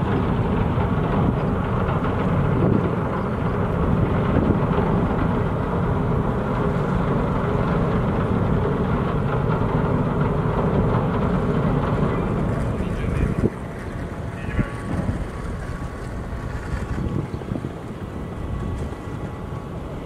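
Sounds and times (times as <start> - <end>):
ferry machinery rumbling: 0.0 - 20.0.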